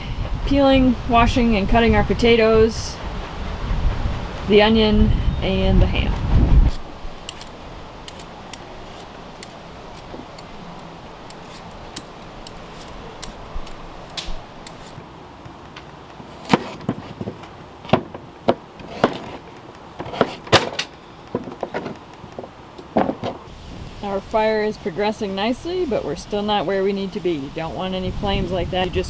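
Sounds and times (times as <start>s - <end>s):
vegetable peeler scraping: 6.7s - 17.2s, 18.8s - 20.5s.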